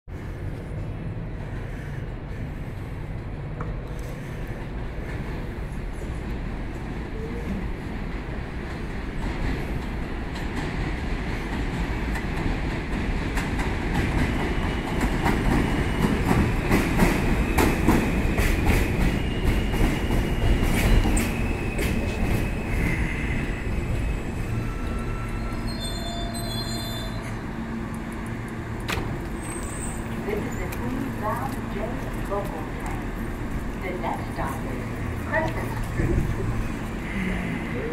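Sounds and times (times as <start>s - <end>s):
train rumbling on elevated track: 0.1s - 37.9s
metallic wheel squeal: 24.1s - 27.4s, 29.4s - 30.1s.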